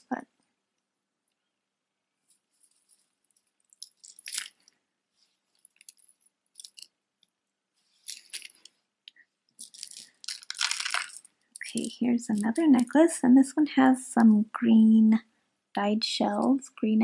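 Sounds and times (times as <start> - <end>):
seed beads rustling and clicking: 2.6 - 4.8, 5.5 - 7.3, 7.9 - 13.0.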